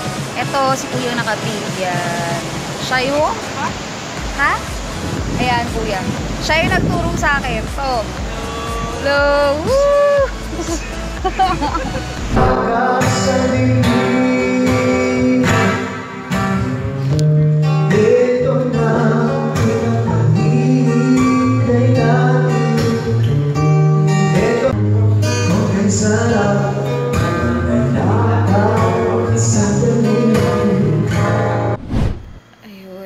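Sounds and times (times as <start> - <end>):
steady drum beat: 0.0 - 3.3, 4.2 - 13.4
guitar: 0.0 - 31.8
bass line: 4.2 - 15.7
person singing: 8.3 - 16.0, 17.9 - 23.4.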